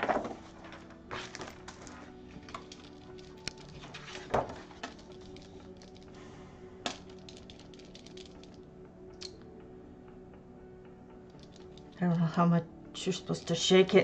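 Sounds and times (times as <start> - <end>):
paint marker ball rattling: 1.7 - 6.1, 6.9 - 8.6, 11.3 - 12.0.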